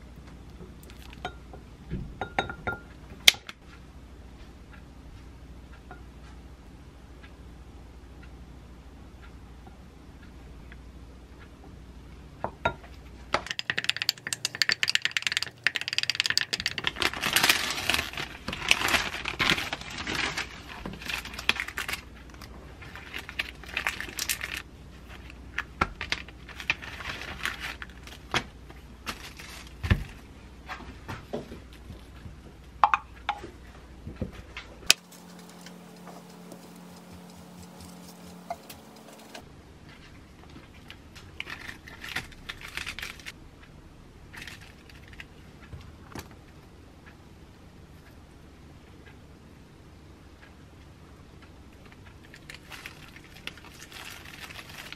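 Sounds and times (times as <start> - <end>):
plastic wrapper rustling: 15.7 - 24.6, 26.0 - 28.3, 29.0 - 30.2, 41.4 - 43.4, 52.3 - 54.9.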